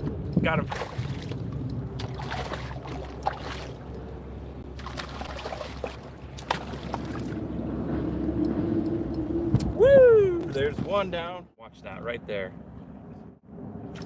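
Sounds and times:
wind: 0.0 - 14.0
water lapping around kayak: 0.4 - 8.1
water splashing: 0.6 - 7.5.

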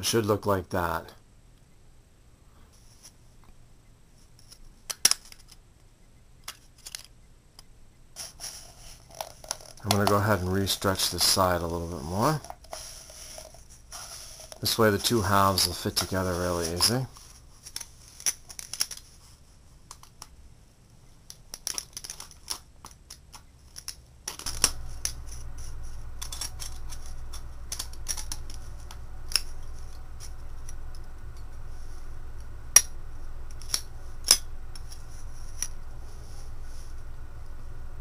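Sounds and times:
steady low hum: 7.2 - 18.5, 24.1 - 38.0
aluminum can clicking and crinkling: 9.0 - 10.3, 21.3 - 25.2.

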